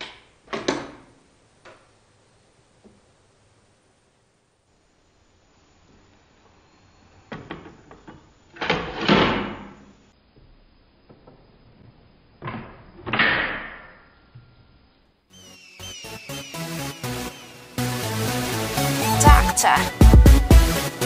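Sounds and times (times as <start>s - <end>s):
electronic music: 16.0s - 21.0s.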